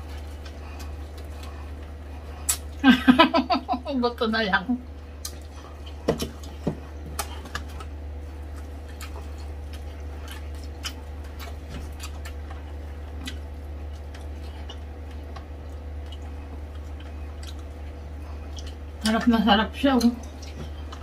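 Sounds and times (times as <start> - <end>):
chewing squishes: 0.0 - 2.8, 4.8 - 21.0
steady low hum: 0.0 - 21.0
mouth clicks and lip smacks: 2.4 - 2.7, 5.2 - 6.5.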